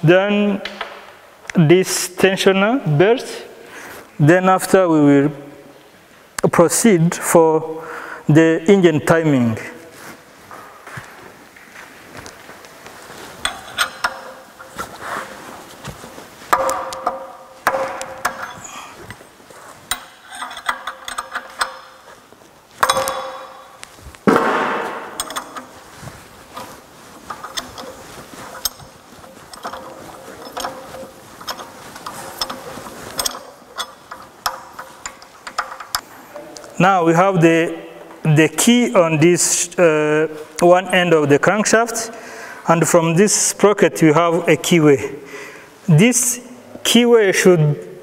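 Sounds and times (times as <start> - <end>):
metal tools clinking and knocking: 13.4 - 14.9, 16.5 - 22.1, 22.8 - 23.7, 24.8 - 26.0, 26.6 - 36.1.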